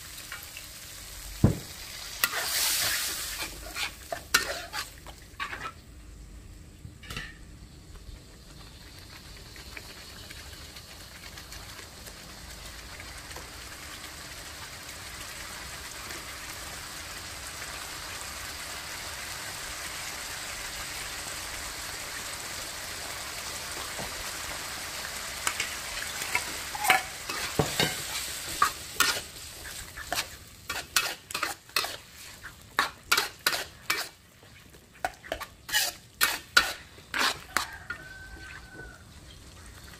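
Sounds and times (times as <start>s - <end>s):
sauce sizzling in a wok: 0.0s - 6.6s, 7.6s - 39.9s
metal ladle scraping a wok: 2.2s - 5.8s, 25.4s - 34.2s, 35.0s - 38.1s.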